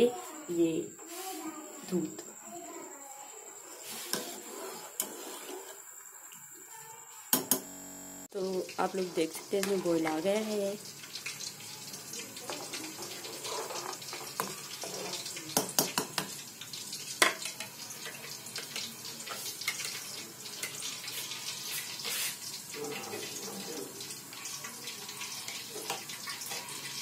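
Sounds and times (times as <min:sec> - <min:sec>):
milk bubbling in a pan: 0:08.3 - 0:27.0.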